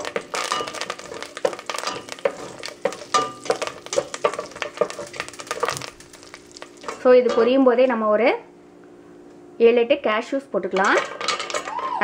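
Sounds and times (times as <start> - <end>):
seeds sizzling in hot oil: 0.0 - 7.6.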